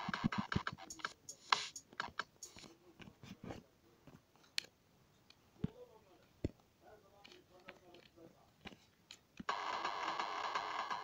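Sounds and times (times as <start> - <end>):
fingers tapping touchscreen: 0.0 - 3.1.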